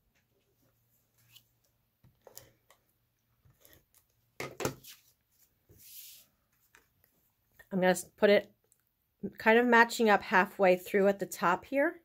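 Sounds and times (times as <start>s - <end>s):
cardstock rustling and scraping: 3.4s - 7.0s.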